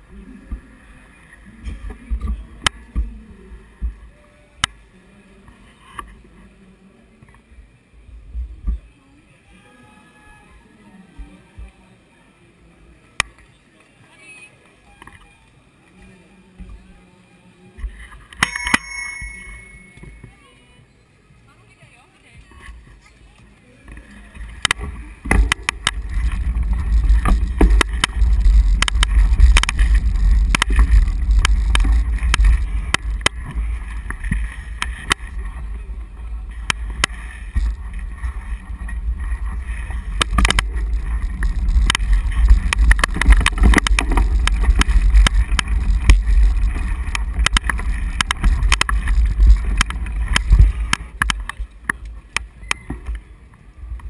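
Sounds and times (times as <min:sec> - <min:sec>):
wind buffeting camera: 0:24.0 - 0:54.0.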